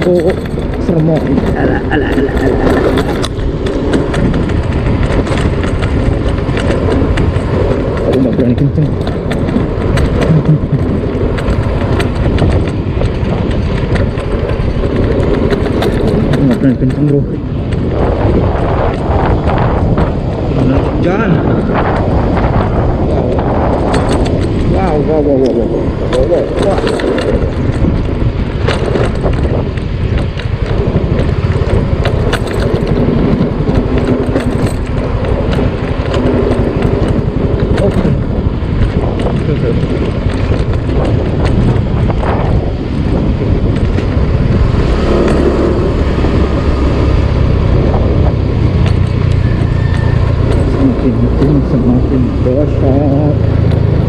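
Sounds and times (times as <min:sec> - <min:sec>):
scooter engine rumble: 0:00.0 - 0:54.0
sharp clicks and rattles: 0:00.0 - 0:54.0
wind buffeting on microphone: 0:00.0 - 0:54.0
sharp clicks: 0:48.7 - 0:52.4.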